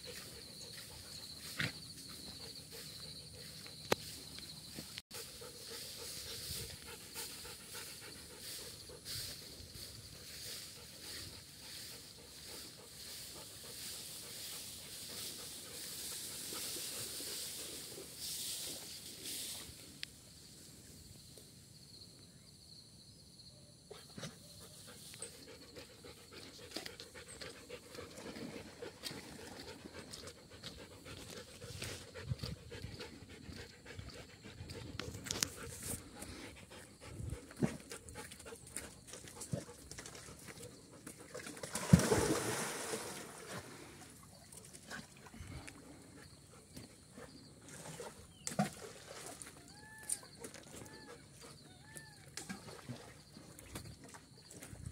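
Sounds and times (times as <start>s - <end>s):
dog panting: 5.1s - 9.5s, 24.6s - 41.3s
dog splashing into water: 41.3s - 43.7s.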